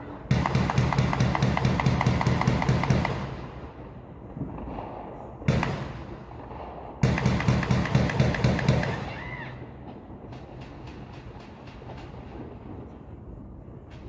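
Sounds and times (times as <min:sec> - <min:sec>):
rapid sharp bangs with echoing boom: 0:00.3 - 0:09.1.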